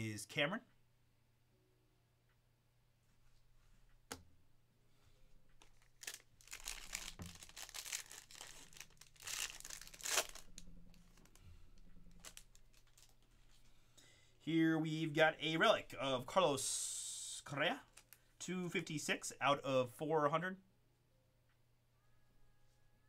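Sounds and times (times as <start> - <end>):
foil wrapper crinkling and tearing: 5.6 - 11.4, 12.1 - 13.3.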